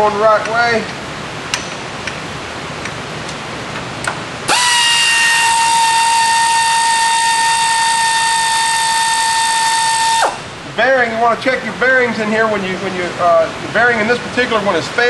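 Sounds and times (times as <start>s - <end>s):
air ratchet whine: 4.5s - 10.5s.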